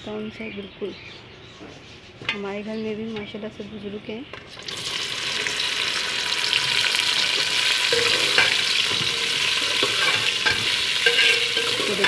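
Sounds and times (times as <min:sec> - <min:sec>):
okra sizzling in hot oil: 0:04.4 - 0:12.0
metal spoon knocking pot: 0:07.9 - 0:12.0.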